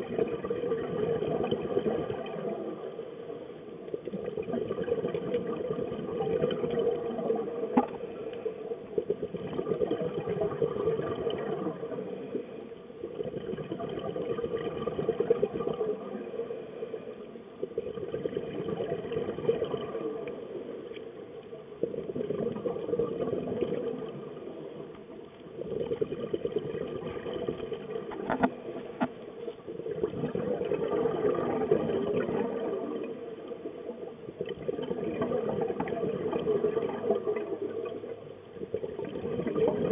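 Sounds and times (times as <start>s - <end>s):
regulator bubbling exhalations: 0.0s - 2.9s, 3.9s - 20.5s, 21.8s - 24.6s, 25.5s - 33.6s, 34.2s - 39.9s
faint clicks: 7.6s - 8.5s, 20.2s - 21.6s.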